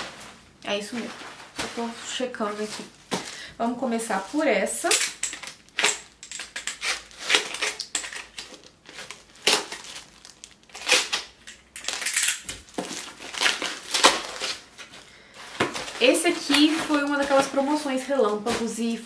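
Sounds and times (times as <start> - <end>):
paper crinkling and scraping: 0.0 - 3.4, 12.6 - 18.9.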